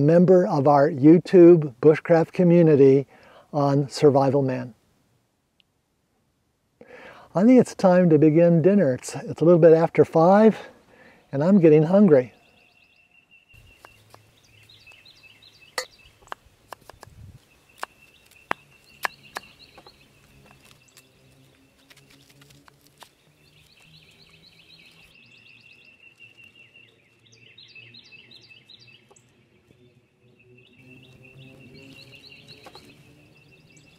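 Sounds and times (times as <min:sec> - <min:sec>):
birds singing: 0:10.3 - 0:33.9.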